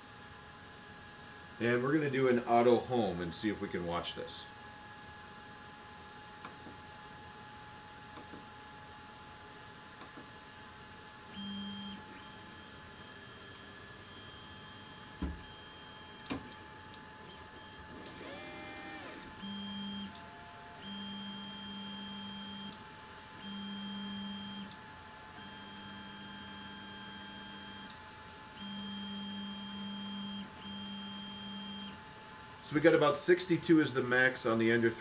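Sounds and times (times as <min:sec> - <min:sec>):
cooling fans whirring: 0:00.0 - 0:35.0
stepper motors whining: 0:17.6 - 0:20.2.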